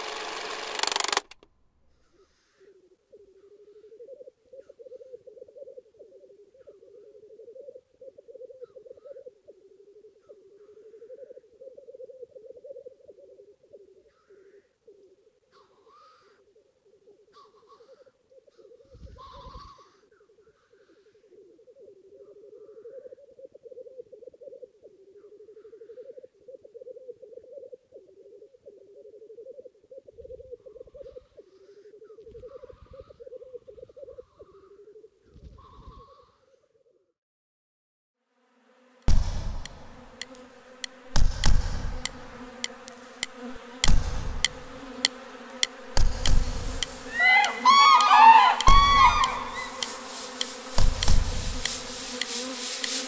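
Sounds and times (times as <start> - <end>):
steady buzzing hum: 0.0 - 1.4, 39.0 - 53.0
light ticks: 39.6 - 53.0
deep drum beats: 45.9 - 47.0, 48.6 - 49.9, 50.7 - 51.8
bird whistled calls: 47.1 - 49.9.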